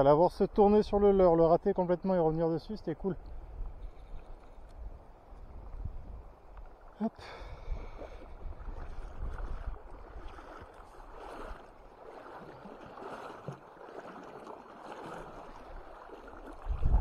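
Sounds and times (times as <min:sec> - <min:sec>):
wind rumbling on microphone: 0:03.0 - 0:17.0
river water rushing over gravel: 0:08.7 - 0:17.0.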